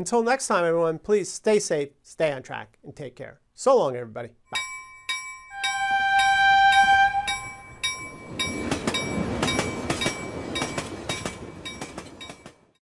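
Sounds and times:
railroad bell ringing: 0:04.5 - 0:12.7
train horn blast: 0:05.5 - 0:07.7
passing train rumble and clatter: 0:05.6 - 0:12.8.

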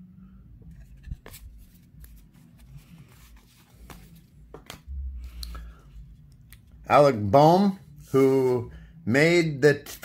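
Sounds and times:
cards sliding and rustling: 0:00.7 - 0:04.9.

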